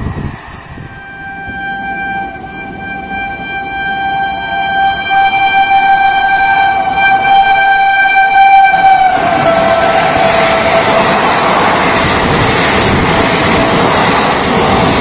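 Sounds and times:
train rushing past: 0.0s - 15.0s
train horn blast: 0.8s - 11.3s.

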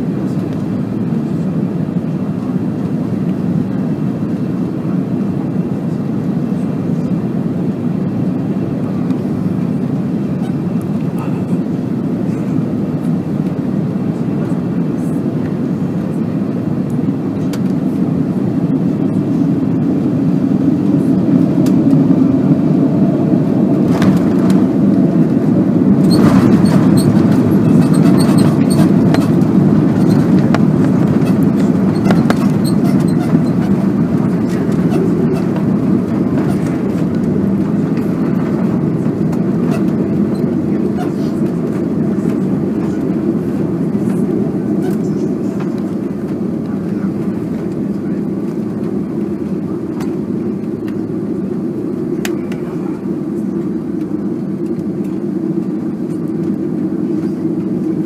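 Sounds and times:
airplane cabin engine noise: 0.0s - 58.0s
runway rumble with rattling: 0.0s - 58.0s.

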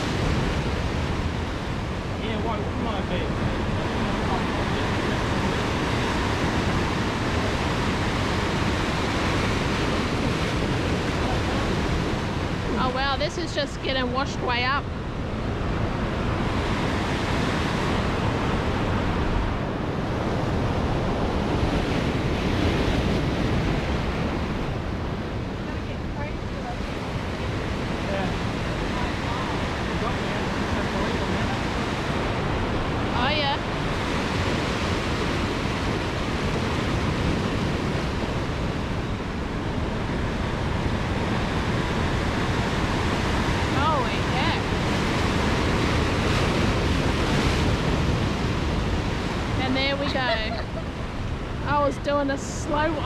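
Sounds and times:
surf washing against rocks: 0.0s - 53.0s
wind on microphone: 0.0s - 53.0s.

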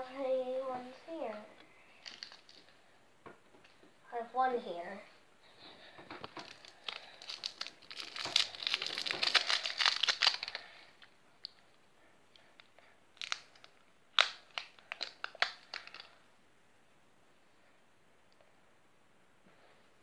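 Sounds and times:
sweet wrapper crinkling: 1.9s - 2.8s, 6.2s - 11.6s, 12.6s - 16.2s.

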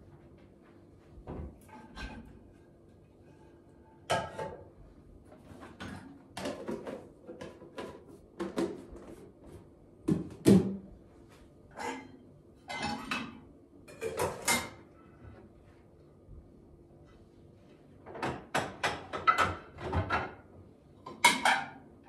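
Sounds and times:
dishes clattering: 4.0s - 4.7s, 11.7s - 14.9s, 18.1s - 20.4s, 21.1s - 21.8s.

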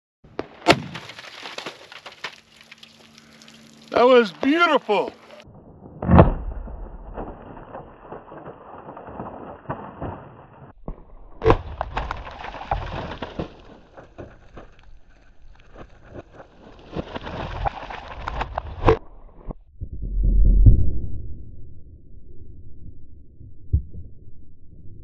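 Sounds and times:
sharp crack: 0.3s - 5.4s, 6.0s - 13.7s
water and ice pattering: 0.7s - 5.4s, 7.2s - 10.6s, 11.5s - 18.8s.

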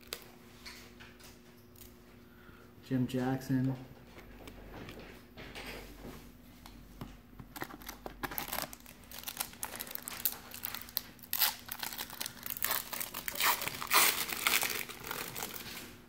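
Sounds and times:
wrapper crinkling and tearing: 7.5s - 16.0s.

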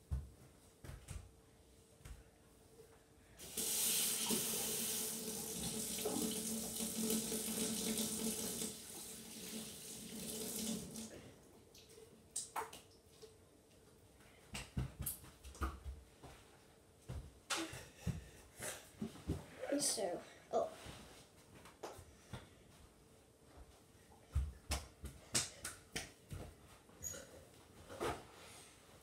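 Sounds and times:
tap water running into sink: 3.4s - 11.1s.

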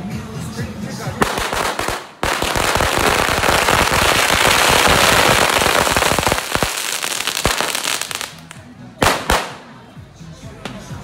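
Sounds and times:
firecrackers crackling: 1.2s - 9.9s.

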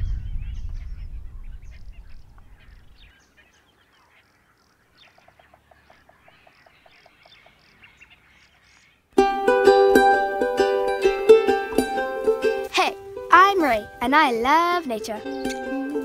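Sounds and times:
birds chirping and whistling: 0.0s - 9.1s, 15.0s - 16.0s
short evenly spaced notes: 9.2s - 16.0s.

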